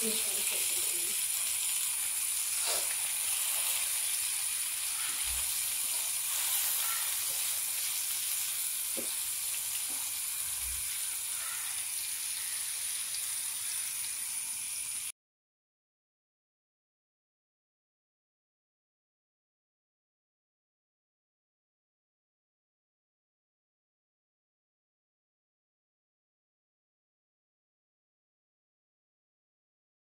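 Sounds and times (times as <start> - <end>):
fish sizzling in hot oil: 0.0 - 15.1
spatula tapping pan: 8.9 - 9.2.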